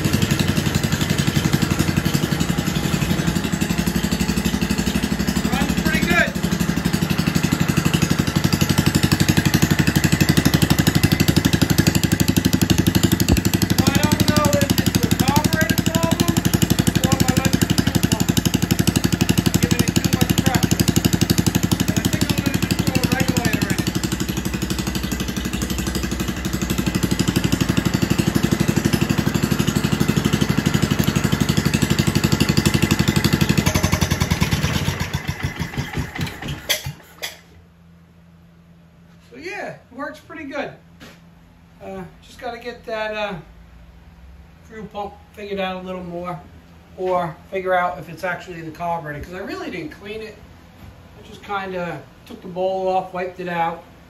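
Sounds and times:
single-cylinder engine running: 0.0 - 37.3.

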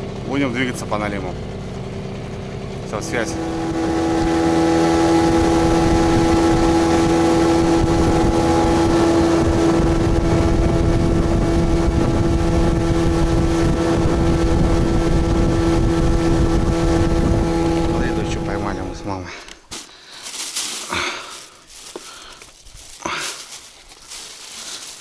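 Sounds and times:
motorboat engine running: 0.0 - 25.0
wind on microphone: 3.4 - 18.9.

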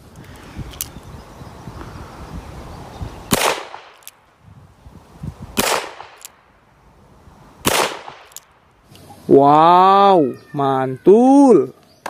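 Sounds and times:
gunshot echo: 3.3 - 4.0, 5.6 - 6.2, 7.6 - 8.3.

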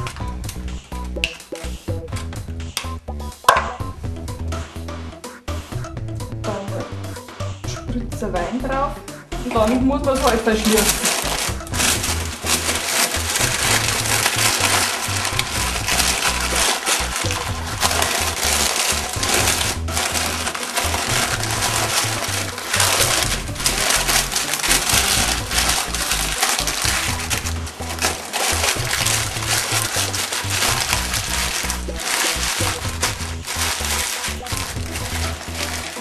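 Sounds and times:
background music with beat: 0.0 - 36.0
parchment paper crinkling: 9.7 - 36.0.

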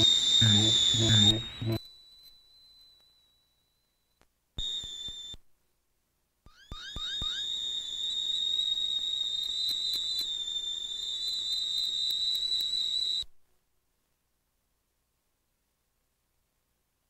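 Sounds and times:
high-pitched whistle-like tone: 0.0 - 5.5, 6.5 - 13.4.

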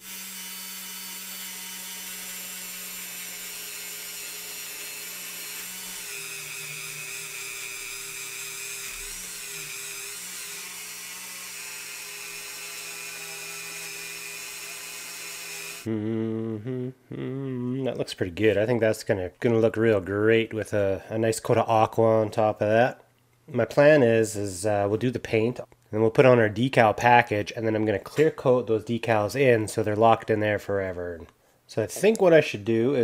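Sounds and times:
rotary tool high whine: 0.0 - 15.9.

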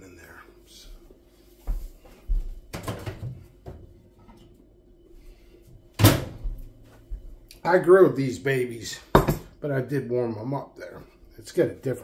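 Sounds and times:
faint steady hum: 0.0 - 12.0
kitchen knocks and clatter: 2.7 - 3.8, 9.1 - 9.6.

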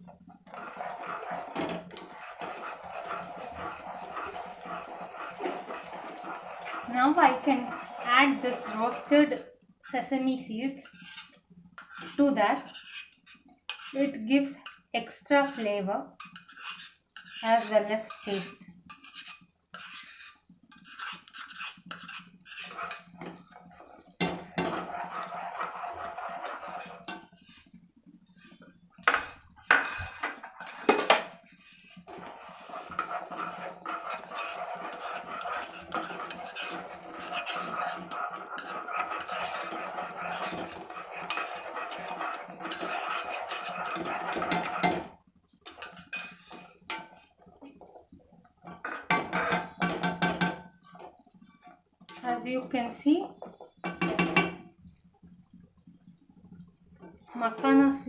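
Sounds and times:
ladle stirring and scraping pot: 0.0 - 58.0
spoon scraping seeds from pan: 0.5 - 9.4, 10.8 - 14.8, 15.4 - 23.3, 24.6 - 27.7, 28.4 - 45.1, 45.7 - 47.4.

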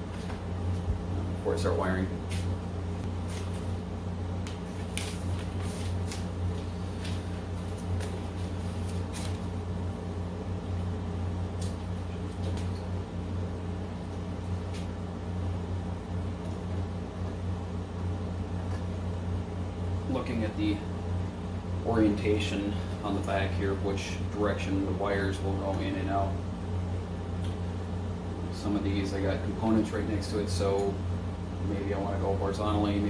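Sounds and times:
low mechanical hum: 0.0 - 33.0
paper rustling: 4.5 - 9.5.

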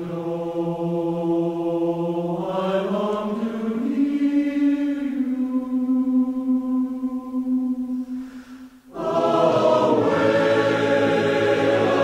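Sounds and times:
voices singing long-held notes: 0.0 - 12.0.

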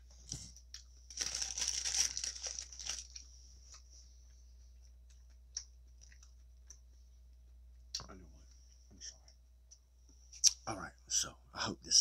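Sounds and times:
wrapping paper crinkling: 1.1 - 3.3.

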